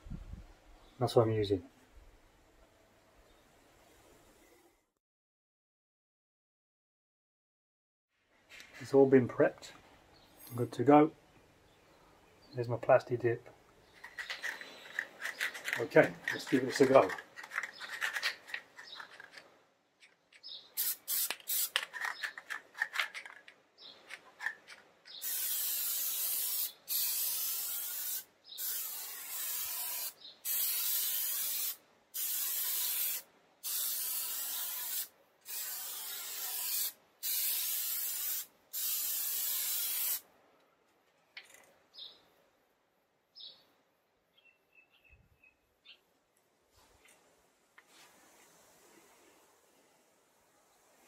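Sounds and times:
spray can rattling: 14.0s - 19.5s, 20.2s - 40.2s
aerosol spray can hissing: 20.8s - 21.8s, 25.1s - 40.2s.

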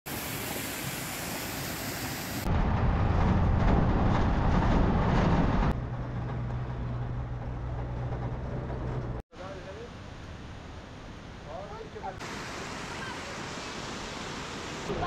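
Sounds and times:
vehicle engine and road noise: 2.4s - 9.8s.

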